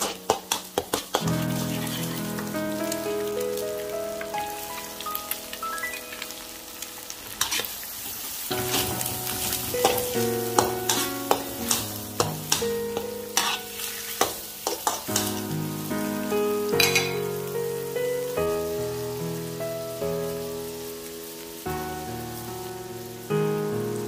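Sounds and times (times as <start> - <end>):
oil sizzling: 0.0 - 24.0
metal spatula scraping a wok: 7.4 - 7.7, 8.6 - 15.4, 16.8 - 17.2.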